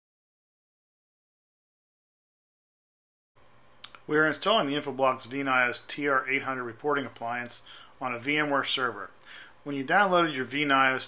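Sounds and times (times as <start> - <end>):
faint hiss and low hum: 3.4 - 11.0
small click: 3.8 - 4.1.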